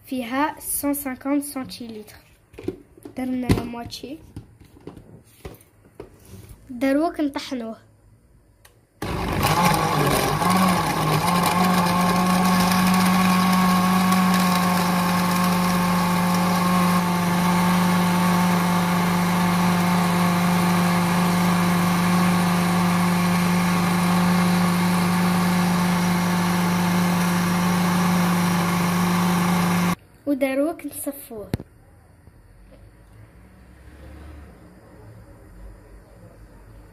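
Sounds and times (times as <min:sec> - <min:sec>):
electric blender running: 0:09.0 - 0:30.0.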